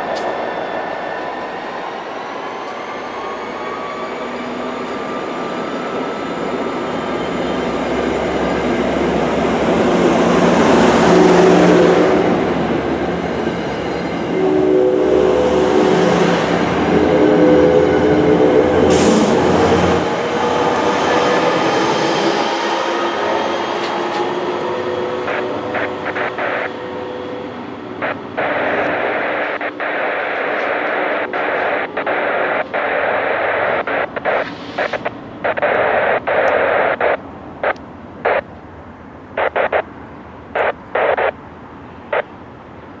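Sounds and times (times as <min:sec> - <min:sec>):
train rumble: 0:06.0 - 0:43.0
radio static bursts: 0:25.2 - 0:26.8, 0:28.0 - 0:38.5, 0:39.3 - 0:39.9, 0:40.5 - 0:41.4.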